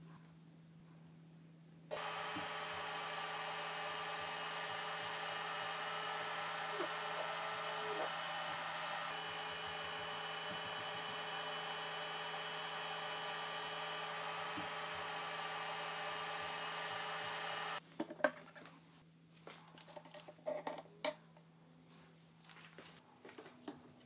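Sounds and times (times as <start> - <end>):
resin printer whirring: 1.9 - 17.8.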